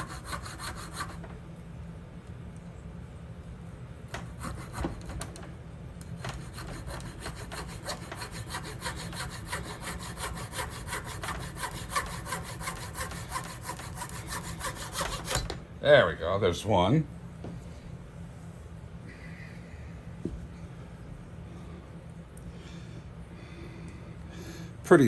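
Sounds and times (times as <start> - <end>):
hacksaw cutting wood: 0.0 - 1.2, 4.2 - 5.3, 6.2 - 15.5.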